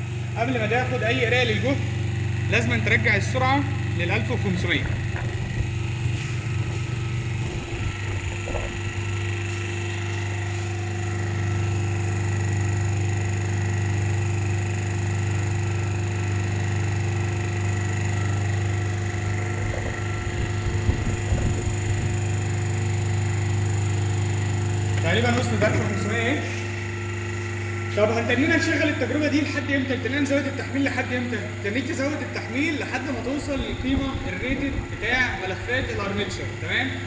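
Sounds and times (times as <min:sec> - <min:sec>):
electrical motor hum: 0:00.0 - 0:37.0.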